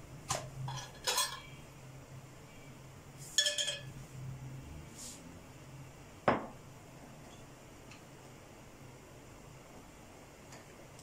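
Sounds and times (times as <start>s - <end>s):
faint steady low hum: 0.0s - 11.0s
kitchenware clinking: 0.6s - 1.6s, 3.4s - 4.0s.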